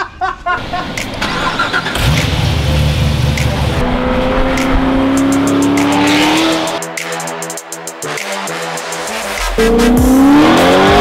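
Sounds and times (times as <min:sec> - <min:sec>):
car engine accelerating: 0:00.6 - 0:06.8, 0:09.2 - 0:11.0
music: 0:00.6 - 0:11.0.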